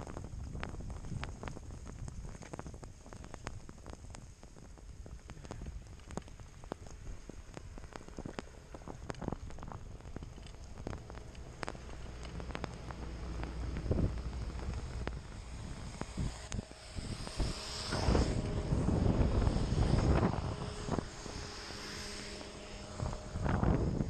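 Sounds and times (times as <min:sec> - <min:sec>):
snow scraping under sliding riders: 0:00.0 - 0:24.0
wind rumbling on microphone: 0:00.0 - 0:24.0.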